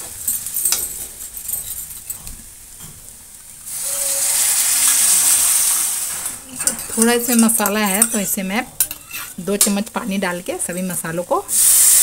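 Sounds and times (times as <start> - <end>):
loud sizzle of liquid in oil: 0.0 - 12.0
spatula scraping in metal pan: 6.1 - 9.8.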